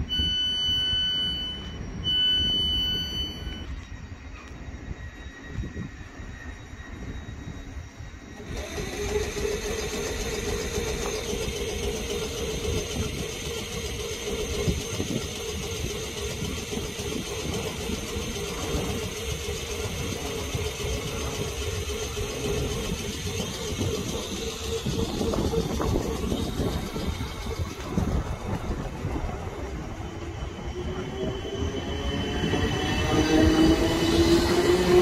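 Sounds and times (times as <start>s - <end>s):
electric train equipment humming: 0.0s - 35.0s
faint high whine: 0.0s - 35.0s
low rumble: 14.2s - 34.8s.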